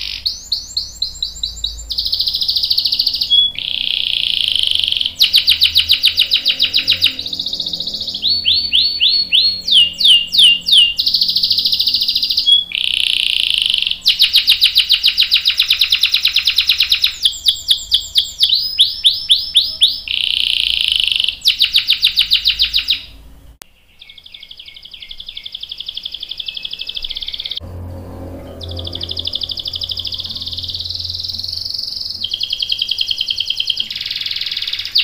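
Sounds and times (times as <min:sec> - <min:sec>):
canary singing trills: 0:00.0 - 0:35.0.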